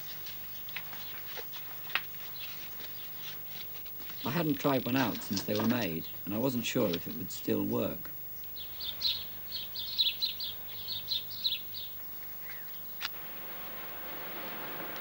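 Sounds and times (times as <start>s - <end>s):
small bird chirping: 8.3s - 13.0s
burning fuse hissing: 13.0s - 15.0s.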